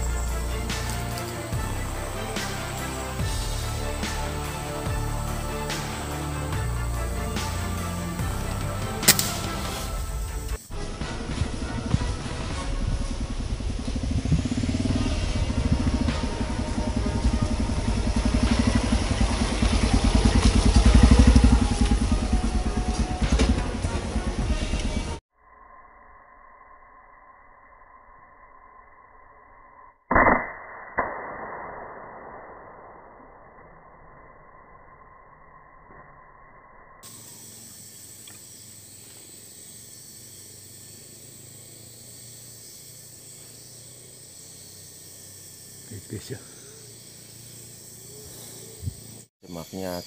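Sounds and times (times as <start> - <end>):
insect chorus drone: 0.0 - 30.1, 30.8 - 50.0
small motorcycle engine chugging: 11.0 - 25.2, 37.0 - 49.3.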